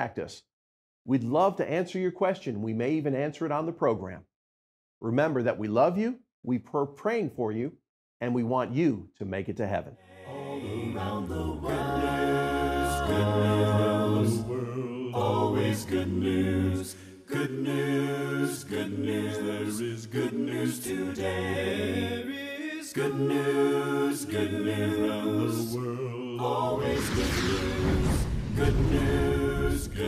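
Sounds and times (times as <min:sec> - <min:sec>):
choir singing a cappella: 0:10.0 - 0:30.0.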